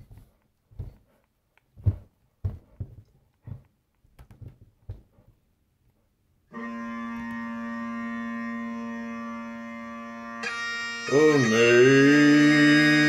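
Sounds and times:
soft thumps: 0:01.8 - 0:05.3
bagpipes droning: 0:06.5 - 0:13.0.

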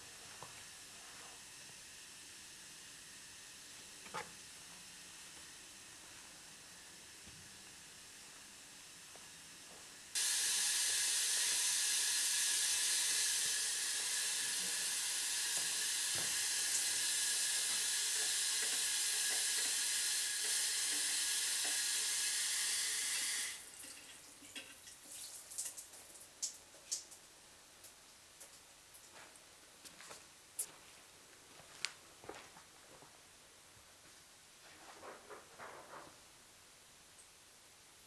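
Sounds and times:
shower water spraying: 0:10.2 - 0:27.0.

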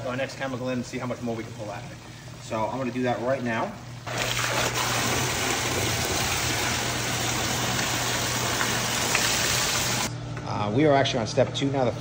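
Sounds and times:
pump humming: 0:00.0 - 0:10.1
water rushing from a hose: 0:04.0 - 0:10.1.

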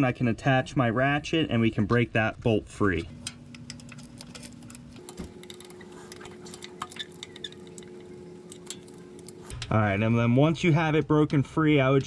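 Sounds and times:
faint steady hum: 0:02.6 - 0:11.0.

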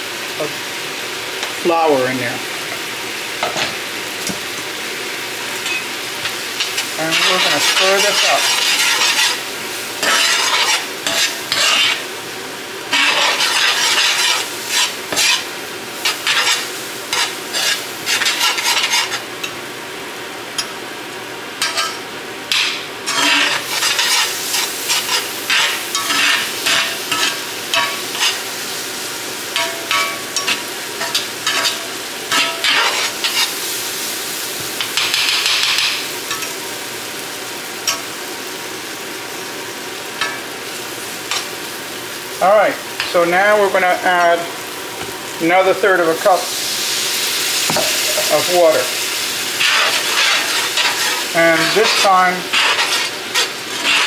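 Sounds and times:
mushrooms sizzling in a pan: 0:00.0 - 0:54.0
spatula scraping a pan: 0:06.2 - 0:12.1, 0:12.9 - 0:19.2, 0:23.1 - 0:28.5, 0:29.5 - 0:33.6, 0:47.7 - 0:54.0.

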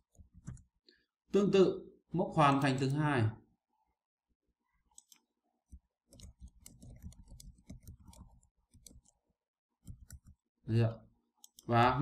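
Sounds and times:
computer mouse clicks: 0:00.0 - 0:00.7, 0:04.9 - 0:09.2, 0:09.8 - 0:10.4, 0:11.4 - 0:11.7
quick keyboard typing: 0:06.1 - 0:09.1, 0:09.8 - 0:10.4.

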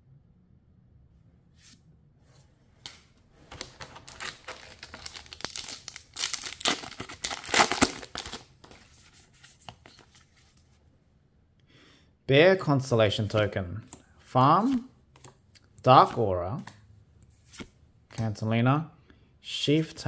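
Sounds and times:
foil wrapper tearing and crinkling: 0:03.7 - 0:08.5.

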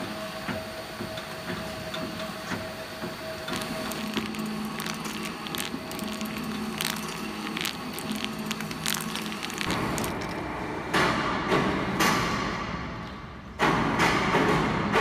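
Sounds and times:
workshop machinery hum: 0:00.0 - 0:12.3
paper crackling: 0:03.5 - 0:10.4.

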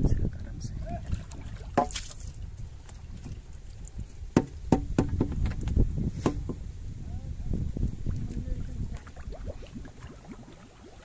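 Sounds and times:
water splashing and dripping: 0:00.8 - 0:04.4, 0:07.8 - 0:11.0
bamboo trap knocking on boat: 0:04.3 - 0:05.6.

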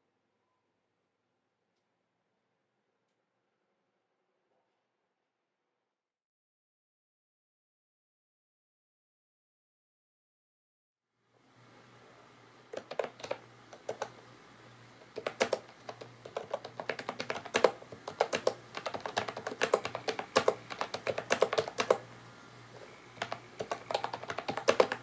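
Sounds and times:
keyboard key clicks: 0:12.8 - 0:14.2, 0:15.1 - 0:22.0, 0:23.2 - 0:25.0.

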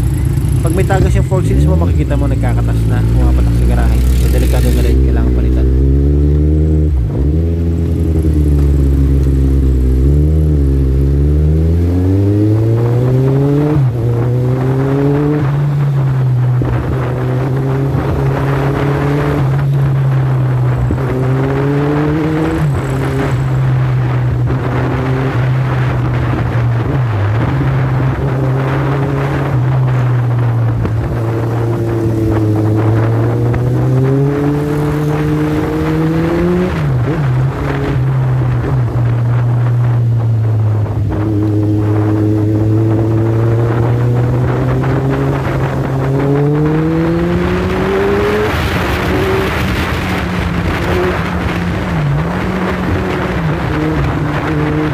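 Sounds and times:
motorcycle engine accelerating: 0:00.0 - 0:54.9.

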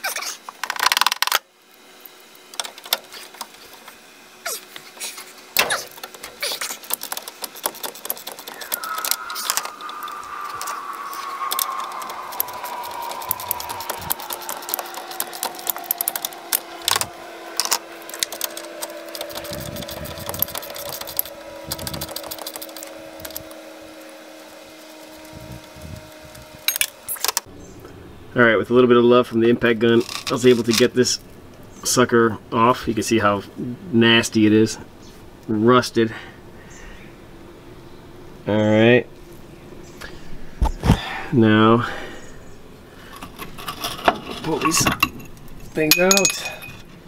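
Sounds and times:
steady hum: 0:00.5 - 0:30.4
whine falling in pitch: 0:07.4 - 0:27.4.

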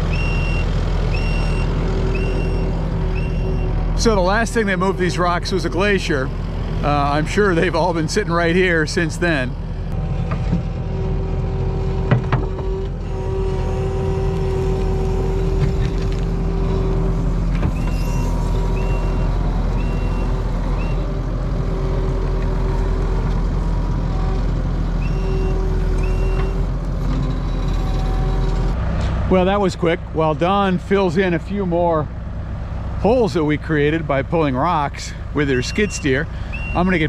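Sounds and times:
diesel engine running: 0:00.0 - 0:37.0
reversing alarm beeping: 0:00.1 - 0:03.8, 0:17.8 - 0:21.1, 0:25.0 - 0:26.6, 0:35.6 - 0:37.0.

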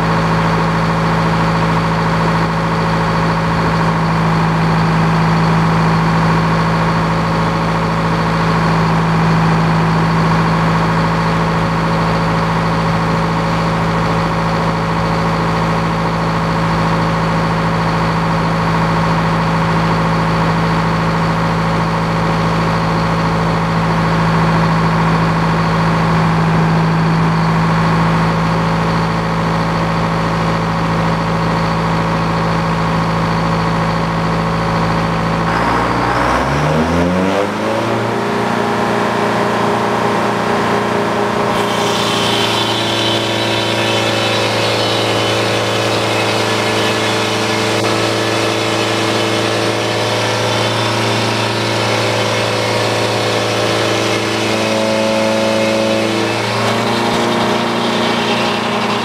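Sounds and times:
engine droning: 0:00.0 - 0:59.0
circular saw cutting log: 0:41.0 - 0:59.0.

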